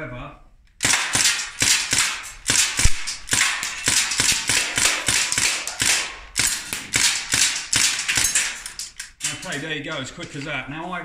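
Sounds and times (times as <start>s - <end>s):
air rifle shots with gas hiss: 0.8s - 8.4s.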